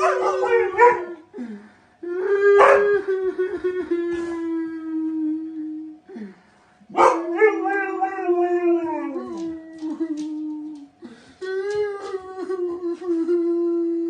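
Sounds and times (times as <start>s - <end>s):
husky howling: 0.0s - 1.3s, 6.9s - 10.9s.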